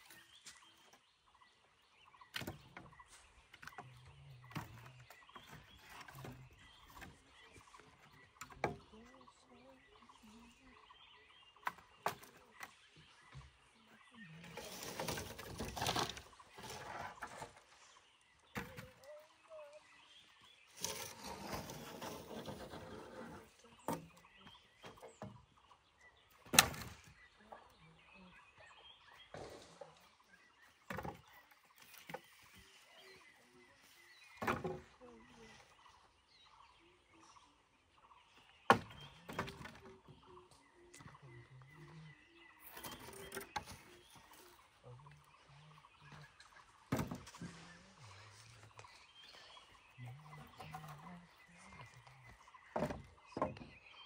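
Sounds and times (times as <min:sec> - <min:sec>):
charred wood knocking and snapping: 0:26.3 - 0:27.2.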